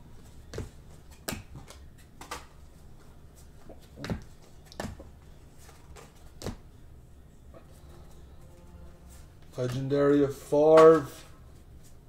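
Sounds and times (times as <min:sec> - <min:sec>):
low steady hum: 0:00.0 - 0:12.0
cards tapping and rustling: 0:00.5 - 0:02.7, 0:03.6 - 0:06.6, 0:10.6 - 0:11.3.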